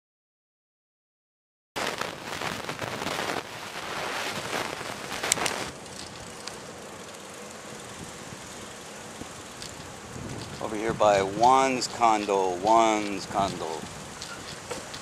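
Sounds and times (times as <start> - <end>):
wind rushing on microphone: 9.2 - 15.0.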